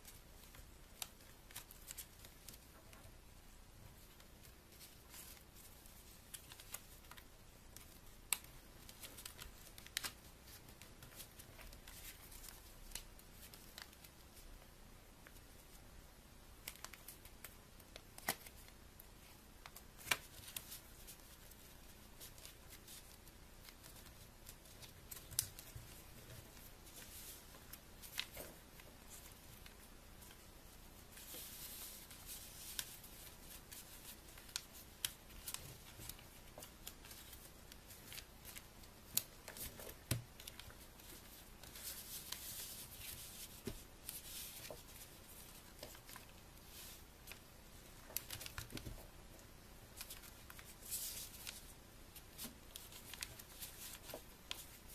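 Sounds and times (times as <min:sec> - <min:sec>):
paper crackling as folded: 0:00.0 - 0:03.1, 0:04.0 - 0:14.4, 0:16.6 - 0:49.2, 0:49.9 - 0:54.9
paper rustling: 0:16.6 - 0:54.9.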